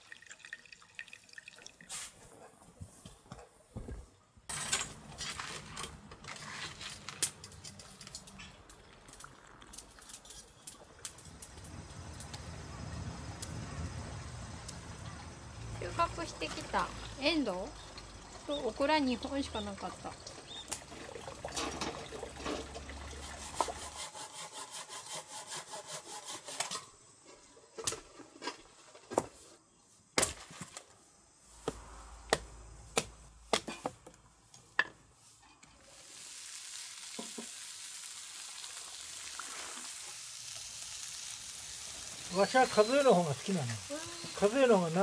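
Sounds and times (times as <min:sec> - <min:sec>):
food frying in a pan: 0:07.9 - 0:23.9, 0:35.7 - 0:45.0.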